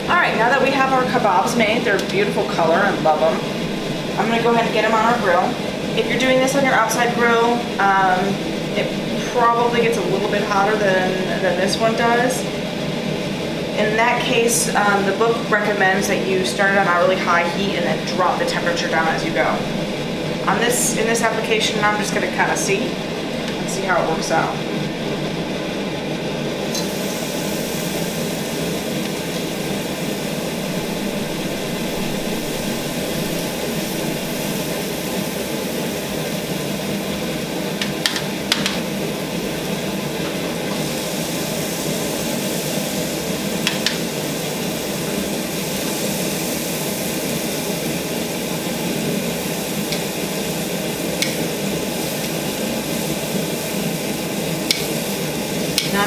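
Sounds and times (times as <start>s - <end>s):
kebabs sizzling on a grill: 25.0s - 56.0s
metal tongs clicking: 54.7s - 54.9s.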